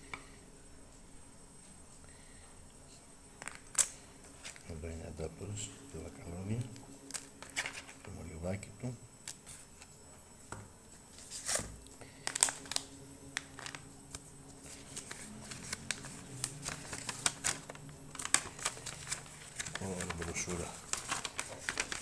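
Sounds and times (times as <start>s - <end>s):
foil bag crinkling: 11.4s - 13.8s, 14.6s - 22.0s
paper and cardboard rustling: 14.6s - 22.0s.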